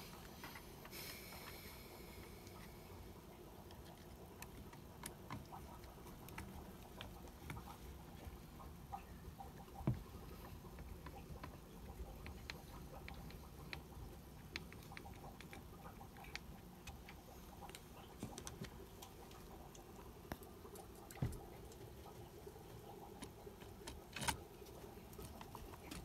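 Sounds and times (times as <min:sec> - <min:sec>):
faint steady hum: 0:00.0 - 0:26.0
plastic parts clicking and tapping: 0:23.1 - 0:26.0.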